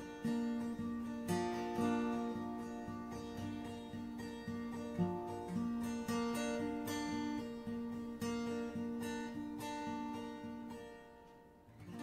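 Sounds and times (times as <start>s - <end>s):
plucked acoustic guitar music: 0.0s - 12.0s.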